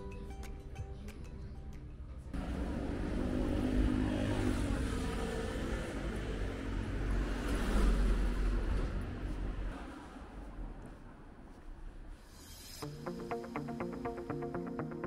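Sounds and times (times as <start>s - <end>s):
rumble of passing cars: 2.2s - 12.4s.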